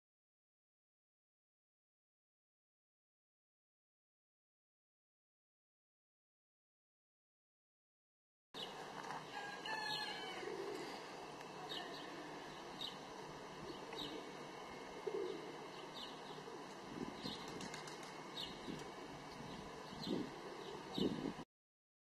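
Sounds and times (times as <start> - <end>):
birds chirping: 8.6 - 21.4
outdoor background noise: 8.6 - 21.5.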